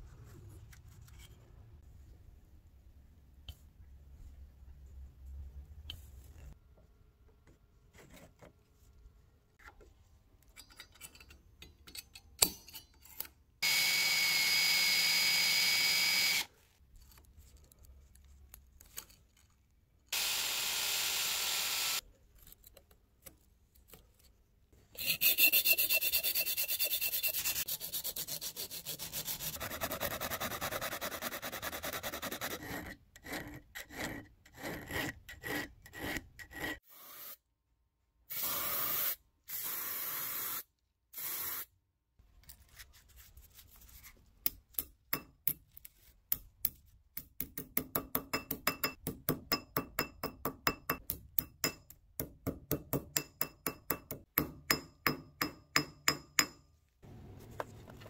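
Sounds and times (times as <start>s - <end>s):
hand file on metal strap: 24.9s - 36.8s.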